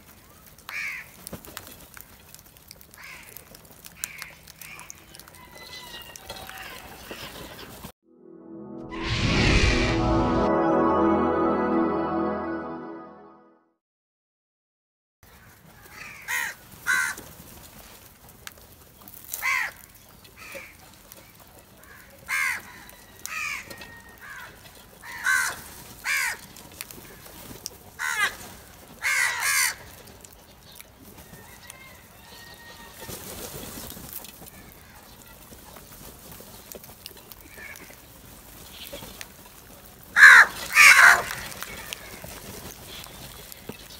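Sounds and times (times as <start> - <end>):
crows cawing: 0.7 - 1.2, 3.0 - 3.4, 4.0 - 5.0, 15.4 - 17.2, 19.4 - 19.8, 21.8 - 26.5, 28.0 - 28.4, 29.0 - 29.9, 37.5 - 38.0, 40.2 - 42.2
brief rush of noise: 8.2 - 13.0.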